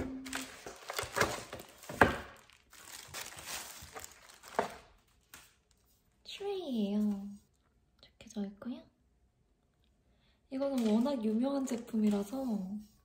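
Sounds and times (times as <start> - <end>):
plastic wrapping crinkling: 0.0 - 6.2, 10.6 - 12.7.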